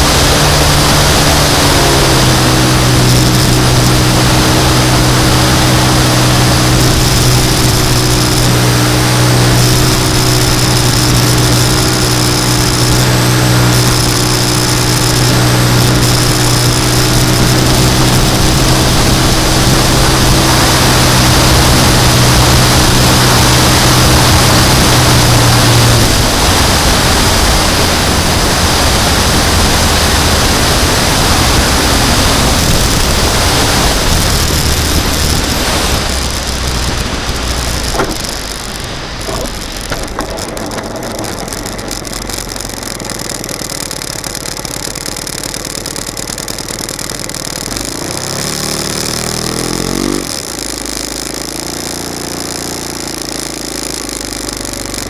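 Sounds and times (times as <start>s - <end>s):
model airplane engine running: 0.0s - 55.0s
wind rush: 15.2s - 41.4s.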